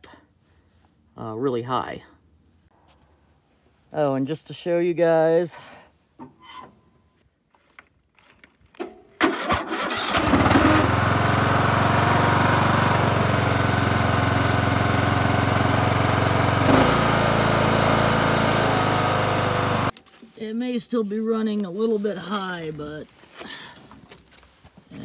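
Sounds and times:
mower engine cranking and running: 9.2 - 19.9.

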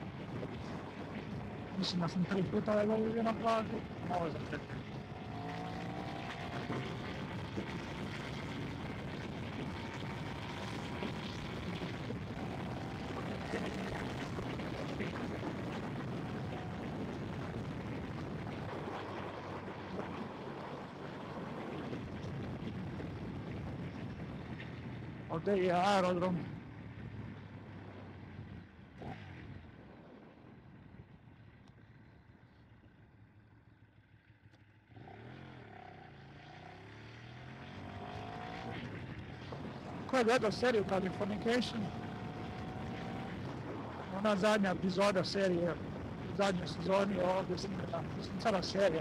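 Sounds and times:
wind rushing over microphone: 0.0 - 20.6
motorcycle engine running: 0.0 - 49.0
wind and road rumble: 0.0 - 49.0.

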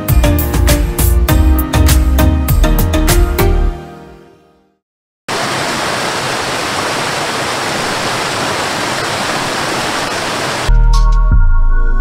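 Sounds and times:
waterfall over rocks: 5.3 - 10.7.

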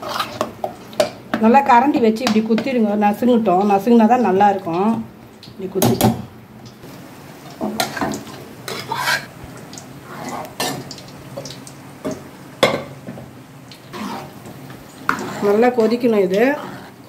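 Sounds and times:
metal ladle scraping a metal pan: 0.0 - 0.5, 7.8 - 9.3, 10.0 - 10.9, 13.9 - 14.5, 15.1 - 17.0.

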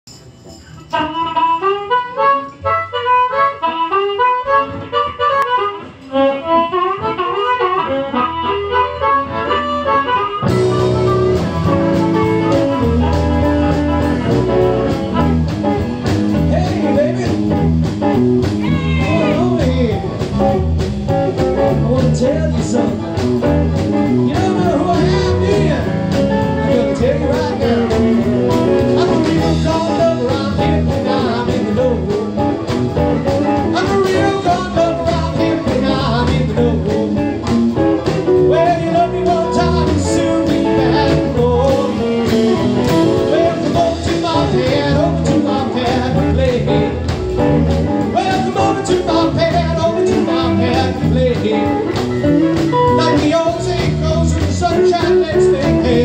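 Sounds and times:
live rhythm and blues band: 0.2 - 56.0
man singing into microphone: 16.3 - 17.6, 18.6 - 20.3, 21.4 - 23.2, 24.1 - 32.7, 33.6 - 37.4, 38.1 - 47.2, 48.0 - 52.0, 52.6 - 56.0.

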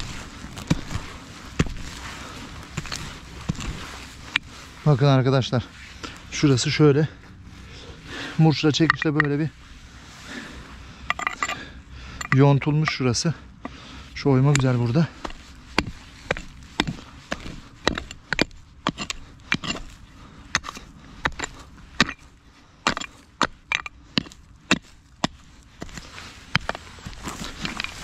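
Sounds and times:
digging tool striking stony ground: 0.0 - 4.5, 8.6 - 9.5, 11.0 - 28.0.

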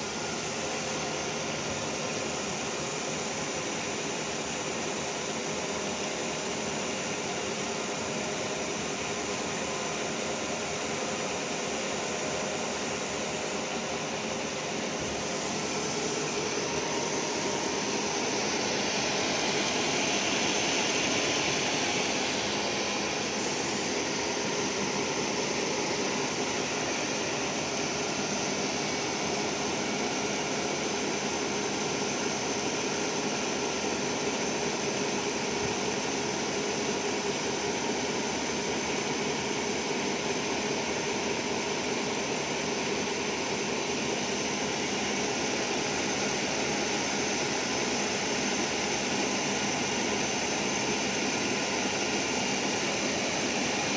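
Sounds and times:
grinding machine hum: 6.9 - 36.4.

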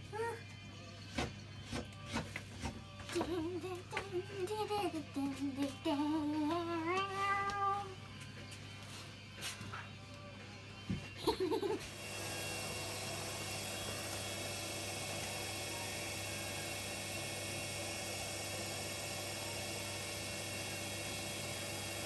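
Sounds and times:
wood lathe whining and humming: 11.8 - 22.0.

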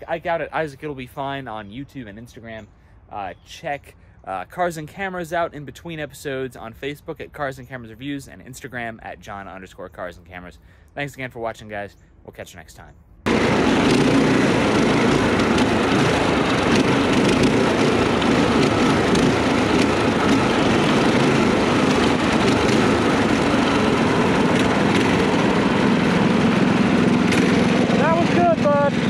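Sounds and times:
small go-kart engines running: 13.3 - 29.0.

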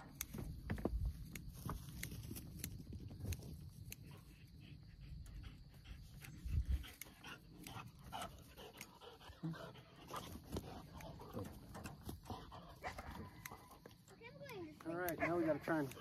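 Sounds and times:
dog panting: 4.0 - 16.0.

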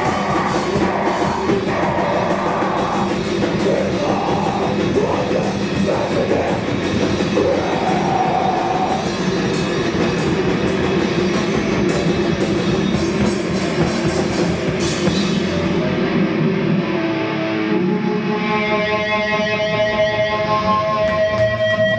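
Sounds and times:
drums and crashing cymbals: 0.0 - 16.5
live rock band: 0.0 - 21.9
sustained guitar notes: 0.0 - 21.9.

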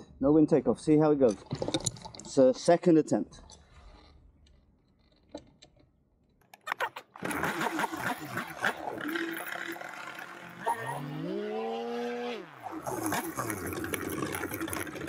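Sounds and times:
two-stroke engine running and revving: 7.2 - 15.0.

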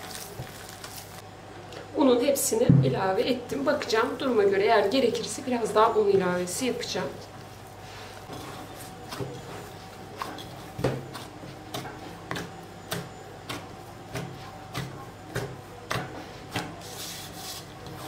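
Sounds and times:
dull thumps of kneading dough: 8.2 - 16.9.

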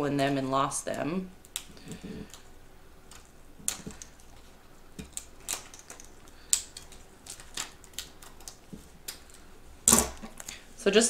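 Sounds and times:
scissors snipping plastic: 3.1 - 4.4, 5.0 - 10.5.

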